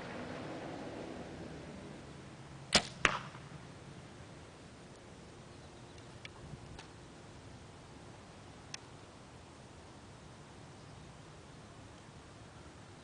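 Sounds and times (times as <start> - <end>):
arrow striking target: 2.7 - 3.4
faint clicks: 8.7 - 8.9.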